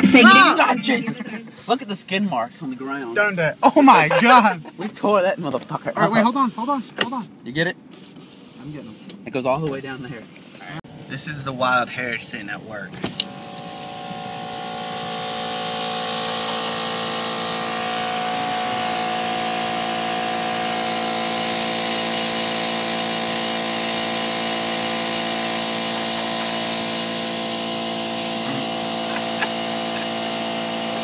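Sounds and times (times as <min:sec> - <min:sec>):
air compressor running: 0:05.8 - 0:09.0, 0:13.0 - 0:31.0.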